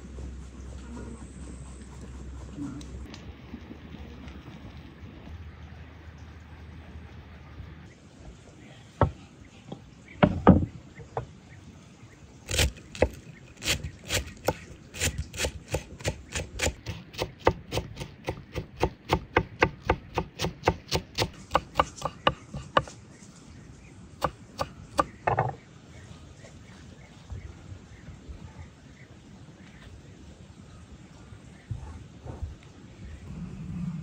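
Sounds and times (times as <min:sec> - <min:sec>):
knife chopping on wooden board: 0:12.5 - 0:22.9.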